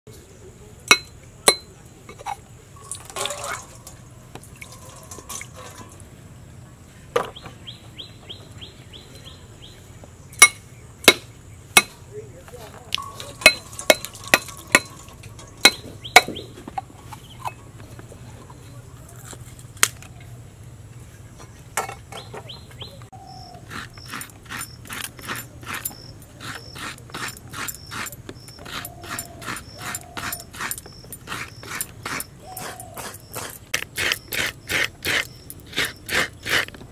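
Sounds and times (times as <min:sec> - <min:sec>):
coconut grating rasps: 0:13.0 - 0:16.4, 0:23.4 - 0:36.9.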